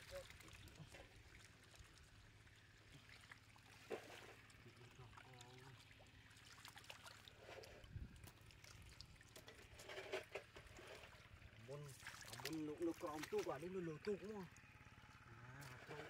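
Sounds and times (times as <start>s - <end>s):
muddy water splashing: 0.0s - 16.0s.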